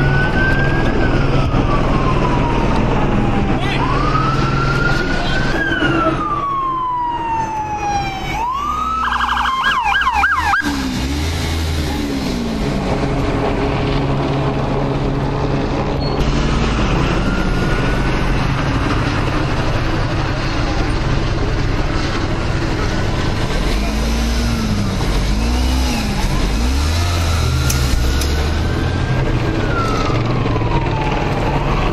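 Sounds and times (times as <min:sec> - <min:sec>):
police siren wailing and yelping: 0:00.0 - 0:10.8, 0:16.9 - 0:18.3, 0:28.4 - 0:31.9
street traffic: 0:00.0 - 0:31.9
vehicle engine: 0:00.0 - 0:31.9.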